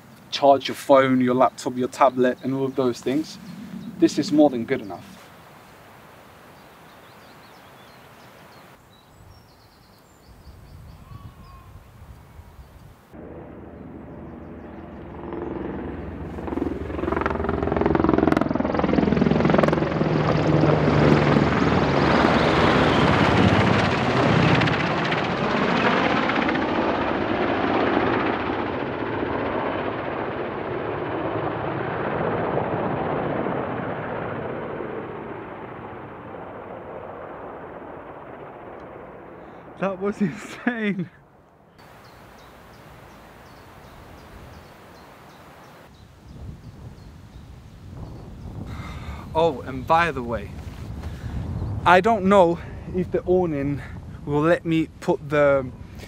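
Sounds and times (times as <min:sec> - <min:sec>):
helicopter rotor beat: 0:01.1 - 0:05.2, 0:13.2 - 0:40.9, 0:41.8 - 0:46.0
helicopter engine whine: 0:02.0 - 0:05.3, 0:13.2 - 0:40.8, 0:41.8 - 0:51.8.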